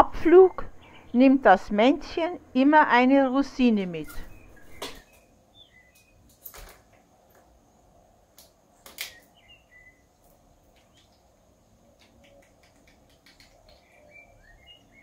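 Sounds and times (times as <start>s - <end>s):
faint bird chirps: 4.1s - 6.3s, 9.1s - 10.2s, 12.0s - 15.0s
bird pecking taps on stone: 12.0s - 13.8s.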